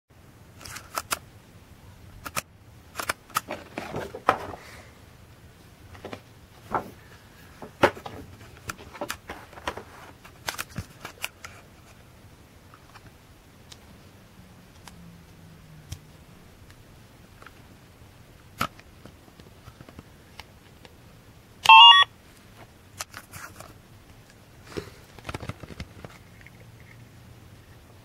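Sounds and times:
cardboard and plastic packaging handled: 3.0 - 4.9, 5.9 - 12.0, 22.4 - 23.8, 24.7 - 26.5.

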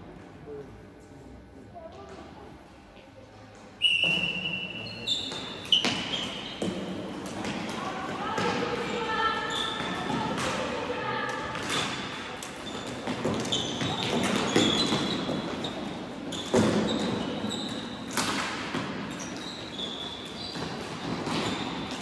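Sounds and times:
shoes squeaking on court: 3.9 - 7.5, 8.8 - 10.3, 11.5 - 22.0.

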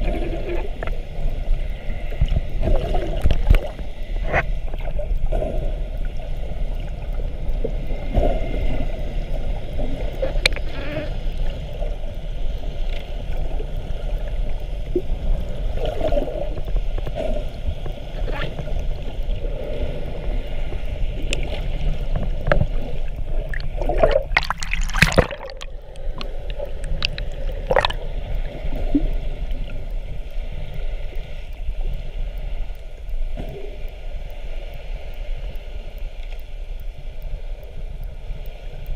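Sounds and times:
small clicks underwater: 0.0 - 38.9
underwater low rumble: 0.0 - 38.9
bubbles rushing: 23.4 - 28.1.

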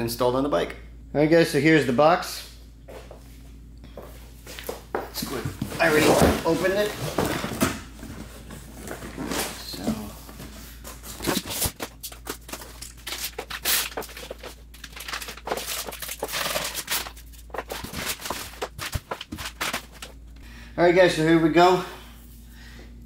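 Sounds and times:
cardboard and plastic wrap rustling: 5.1 - 20.2.

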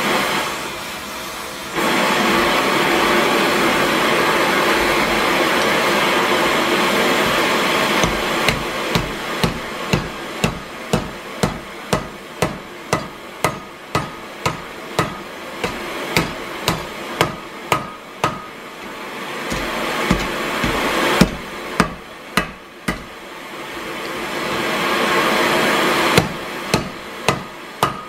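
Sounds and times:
hammer striking metal on anvil: 8.0 - 18.6, 19.5 - 23.2, 26.2 - 28.0.

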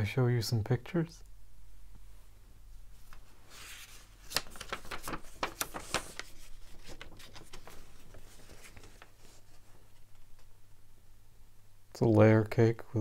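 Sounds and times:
paper rustling and crackling: 2.9 - 10.5.

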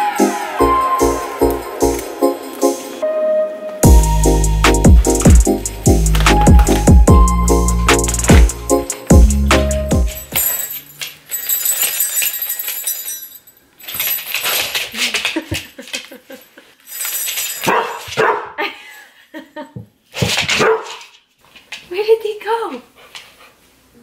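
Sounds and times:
puppy short barks: 17.7 - 18.6, 20.6 - 21.0.

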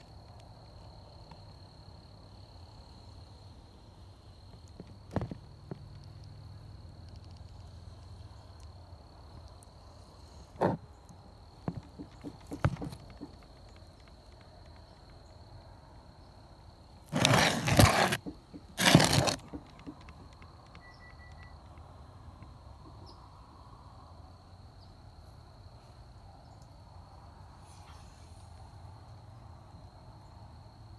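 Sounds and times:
loud scraping rustling: 17.1 - 20.0.

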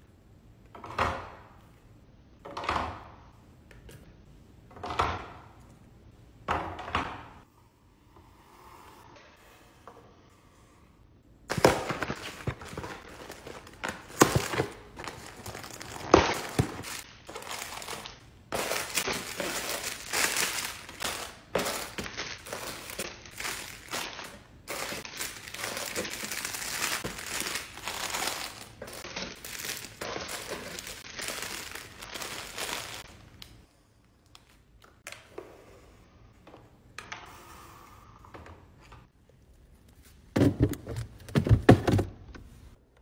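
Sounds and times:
plastic wrapping crinkling: 11.5 - 33.1.

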